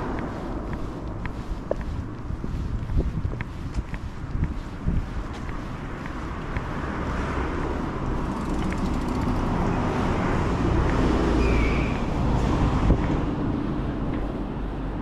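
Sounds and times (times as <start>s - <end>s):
bus driving past: 0.0s - 15.0s
car driving past: 6.2s - 13.3s.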